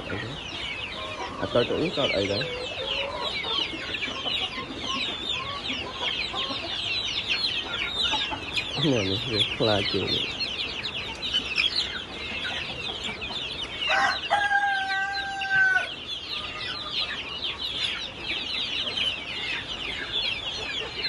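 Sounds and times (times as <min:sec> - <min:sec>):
chicks peeping: 0:00.0 - 0:21.0
rooster crowing: 0:13.9 - 0:16.0.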